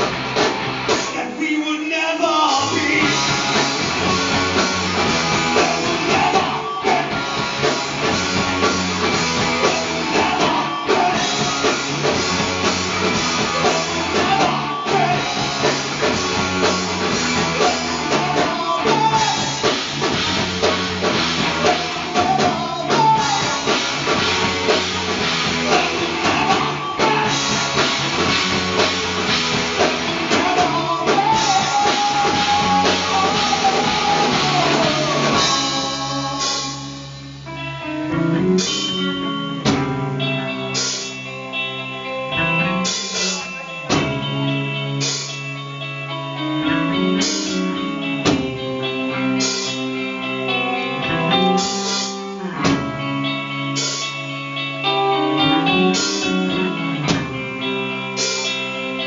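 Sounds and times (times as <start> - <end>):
live rock band playing: 0.0 - 59.0
lead vocals singing: 0.9 - 37.3.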